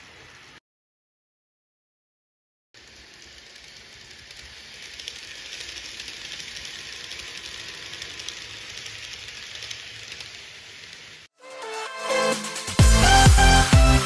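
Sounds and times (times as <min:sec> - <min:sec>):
model train whirring: 0:00.0 - 0:00.6, 0:02.8 - 0:11.3
wheels clicking over rail joints: 0:02.8 - 0:11.3.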